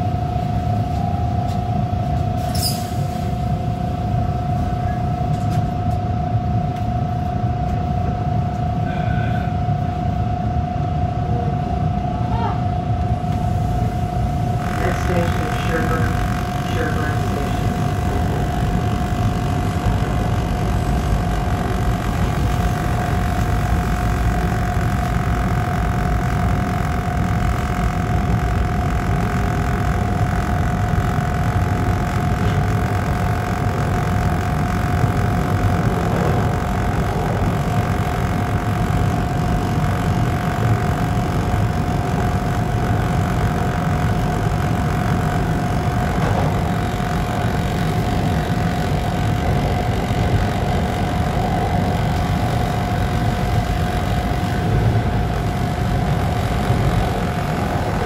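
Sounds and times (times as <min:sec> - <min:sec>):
constant train whine: 0:00.0 - 0:58.0
train wheels rumbling on rail: 0:13.1 - 0:58.0.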